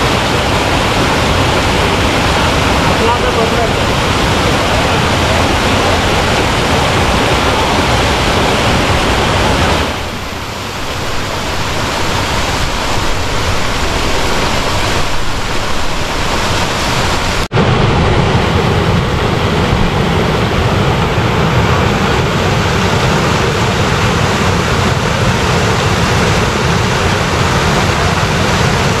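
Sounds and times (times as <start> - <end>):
water rushing down rocks: 0.0 - 29.0.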